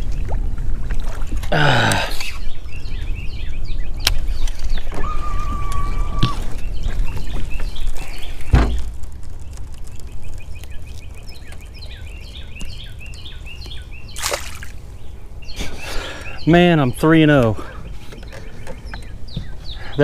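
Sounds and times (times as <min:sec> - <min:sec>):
wind buffeting microphone: 0:00.0 - 0:14.2
small bird chirping: 0:02.4 - 0:17.1.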